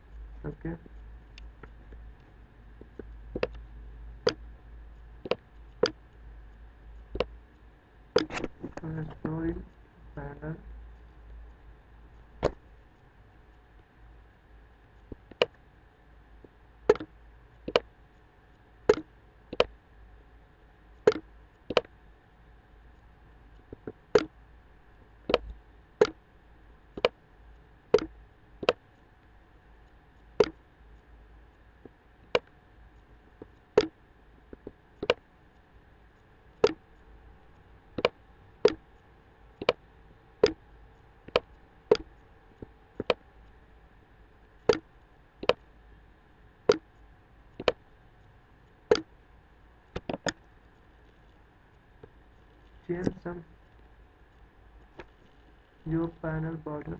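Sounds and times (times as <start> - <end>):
faint electrical hum: 0.0 - 56.9.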